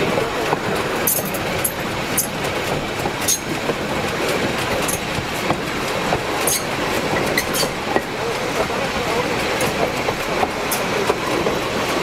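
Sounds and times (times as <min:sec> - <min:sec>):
steel wheels rumbling on rails: 0:00.0 - 0:12.0
wheel squeaks: 0:07.4 - 0:07.8.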